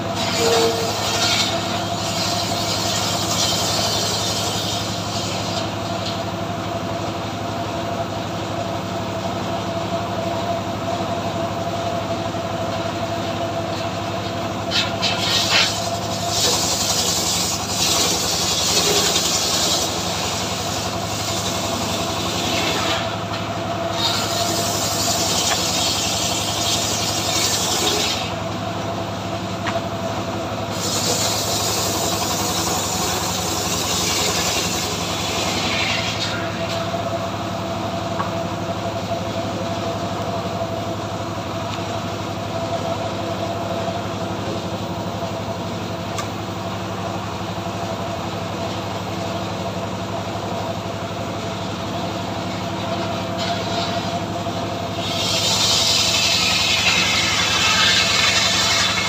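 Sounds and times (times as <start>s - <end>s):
saw blade cutting log: 0.0s - 6.3s, 14.6s - 28.5s, 30.7s - 37.1s, 52.4s - 59.0s
engine drone: 0.0s - 59.0s.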